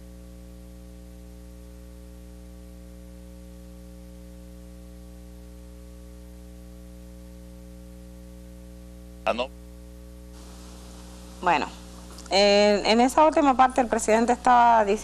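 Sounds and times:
electrical mains hum: 0.0s - 15.0s
light hiss: 10.3s - 14.9s.

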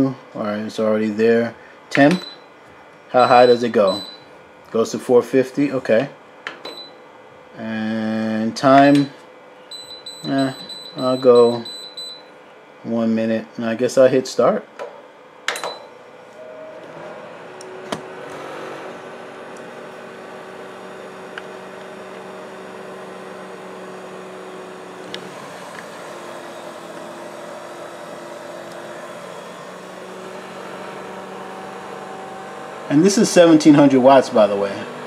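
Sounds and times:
fan whirring and humming: 0.0s - 35.0s
appliance beep: 2.0s - 2.5s, 3.2s - 4.3s, 6.6s - 7.0s, 8.9s - 12.3s, 15.5s - 16.8s.

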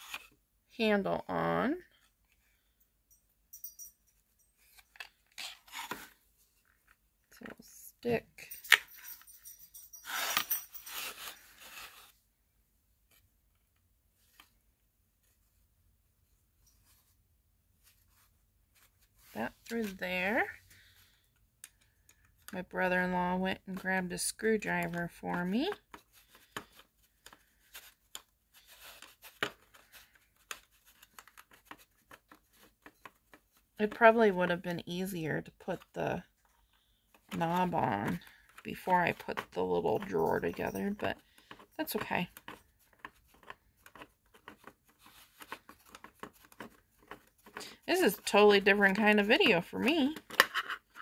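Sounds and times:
screwdriver clicking and scraping: 8.6s - 12.0s.

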